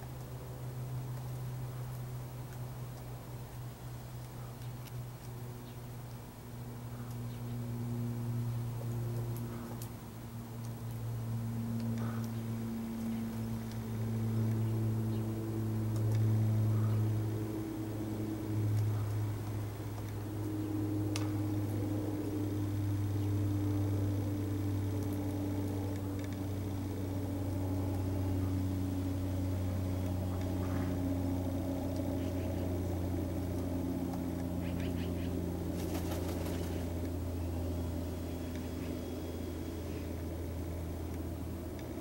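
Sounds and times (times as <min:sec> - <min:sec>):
low motor hum: 0:00.0 - 0:42.0
faint clicks: 0:24.5 - 0:27.2.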